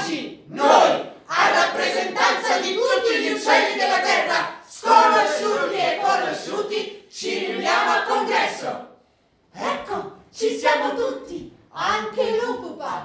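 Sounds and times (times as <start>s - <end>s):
group singing unaccompanied: 0.0s - 9.0s.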